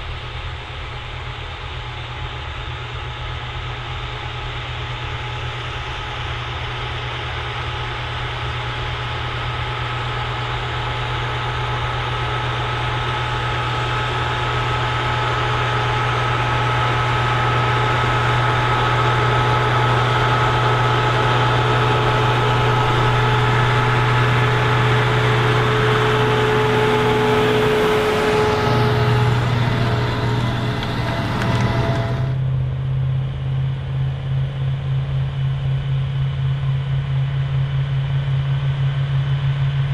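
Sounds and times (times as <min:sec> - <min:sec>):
tractor diesel engine under load: 0:11.3 - 0:32.5.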